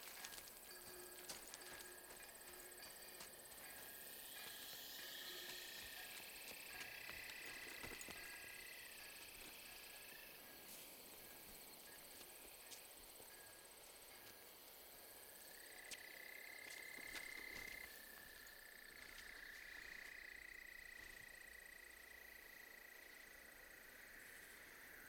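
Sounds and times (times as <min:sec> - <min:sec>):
insects chirring: 0:00.0 - 0:25.0.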